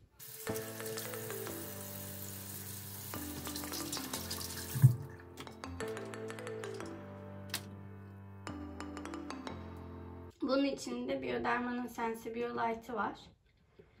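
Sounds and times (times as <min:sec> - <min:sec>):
background music: 0:00.0 - 0:11.5
tap running into a sink: 0:00.2 - 0:01.8, 0:03.0 - 0:05.5.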